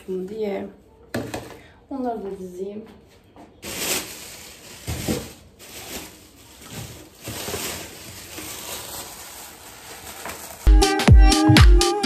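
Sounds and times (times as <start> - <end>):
plastic bag rustling: 3.6 - 10.7.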